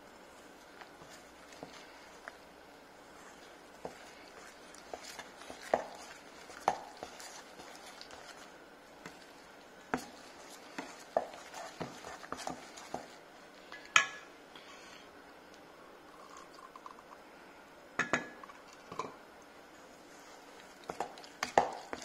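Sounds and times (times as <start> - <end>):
spoon knocking and scraping bowl: 3.8 - 8.4, 9.9 - 13.2, 20.8 - 22.0.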